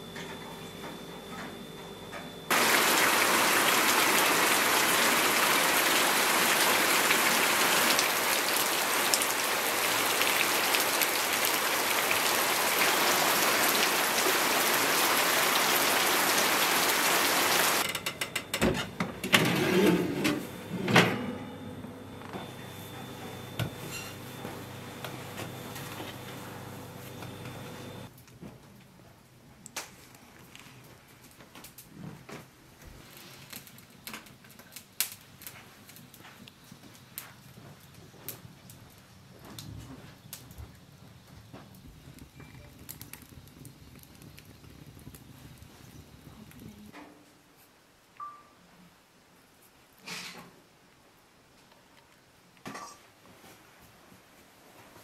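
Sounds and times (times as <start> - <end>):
heavy rain: 2.5 - 17.8.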